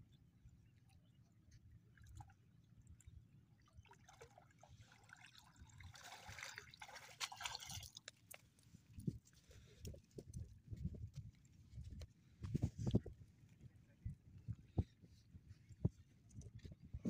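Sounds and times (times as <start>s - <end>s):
shallow water splashing: 3.6s - 8.5s.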